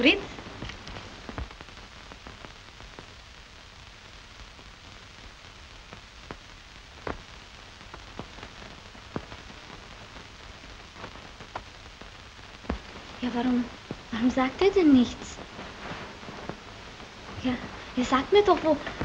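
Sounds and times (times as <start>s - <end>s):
clicks and crackles: 0.0s - 19.0s
film soundtrack hiss: 0.0s - 19.0s
loud pop: 12.6s - 13.0s.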